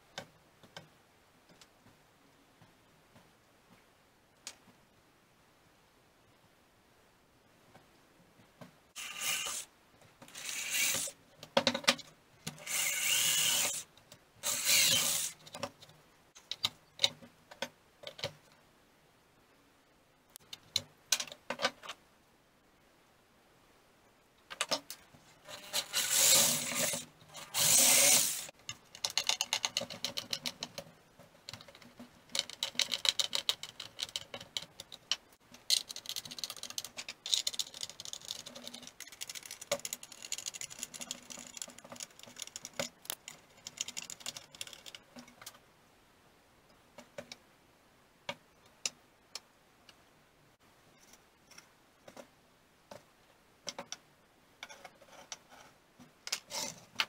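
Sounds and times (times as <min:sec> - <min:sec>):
power tool on steel: 0:26.0 - 0:28.5.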